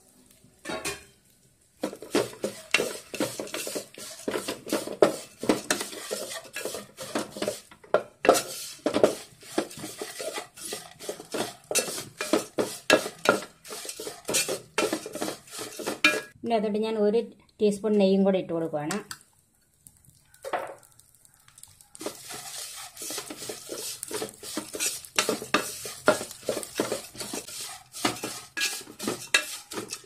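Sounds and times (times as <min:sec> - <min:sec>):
wooden spatula scraping metal pot: 0:01.8 - 0:16.4, 0:21.9 - 0:30.0.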